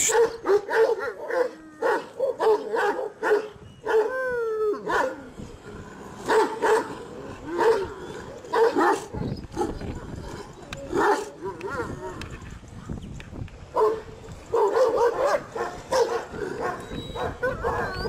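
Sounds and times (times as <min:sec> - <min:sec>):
dog barking: 0:00.0 - 0:04.1, 0:13.8 - 0:18.0
dog drawn-out howl: 0:16.3 - 0:18.0.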